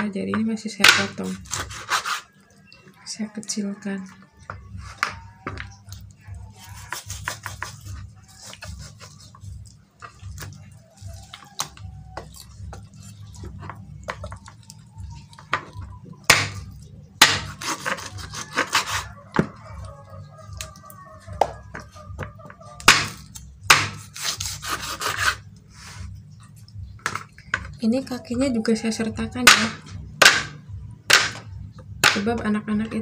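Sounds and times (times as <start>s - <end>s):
knife chopping on wooden board: 6.8s - 7.8s, 15.5s - 16.6s, 17.2s - 19.5s, 21.4s - 25.4s, 29.4s - 32.3s
low steady hum: 7.6s - 33.0s.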